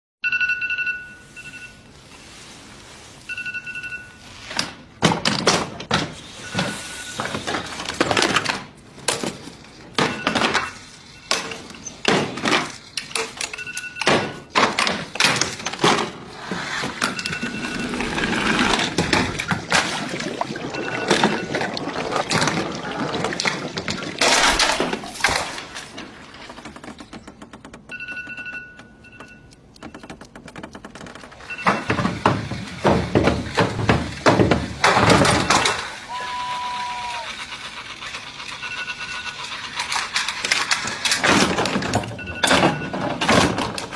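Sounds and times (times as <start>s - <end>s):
phone alarm beeping: 0.2s - 2.2s, 3.2s - 4.6s, 6.4s - 7.5s, 10.0s - 11.7s, 13.5s - 14.6s, 17.0s - 19.6s, 20.2s - 22.0s, 27.9s - 30.3s, 31.4s - 32.2s, 38.5s - 39.5s, 42.0s - 43.2s
pieces knocking clattering and rolling: 17.1s - 36.0s.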